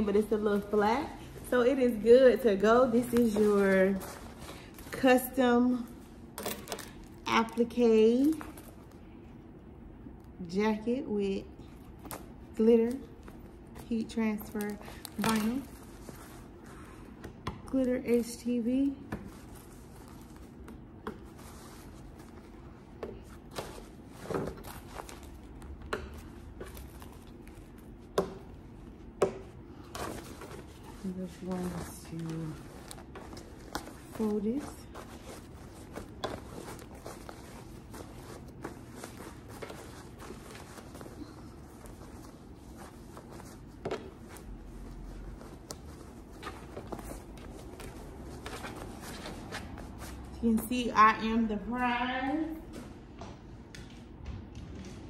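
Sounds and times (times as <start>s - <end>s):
tissue paper rustling: 0.2s - 6.0s, 18.1s - 29.0s, 29.7s - 50.4s.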